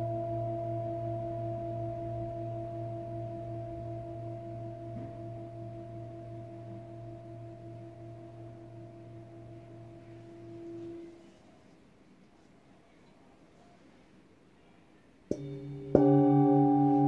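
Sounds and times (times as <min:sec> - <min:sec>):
singing bowl ringing: 0:00.0 - 0:11.2, 0:15.3 - 0:17.0.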